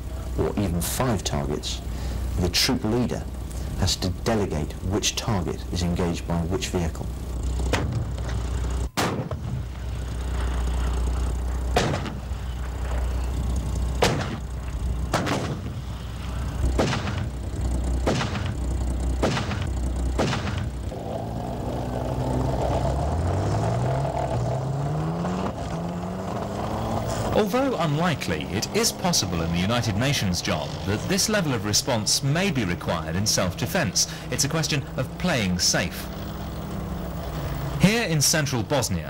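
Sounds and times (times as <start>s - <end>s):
armoured vehicle engine rumble: 0.0s - 39.0s
cannon firing single shots: 9.0s - 9.5s, 11.7s - 12.2s, 14.0s - 14.4s, 15.1s - 15.8s, 16.7s - 17.3s, 18.0s - 18.6s, 19.2s - 20.7s.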